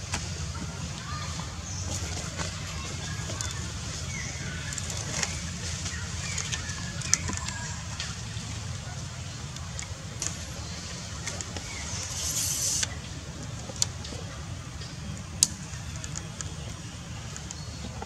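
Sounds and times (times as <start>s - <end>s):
short hiss: 11.8s - 13.0s.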